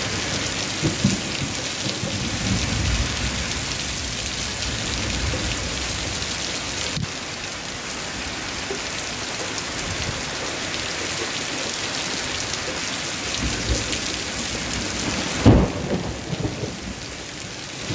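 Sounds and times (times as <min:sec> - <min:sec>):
loud thunderclap: 0:00.0 - 0:07.1, 0:13.4 - 0:17.0
thunder rolling: 0:00.0 - 0:07.1, 0:13.3 - 0:17.9
heavy rain on leaves: 0:00.0 - 0:17.9.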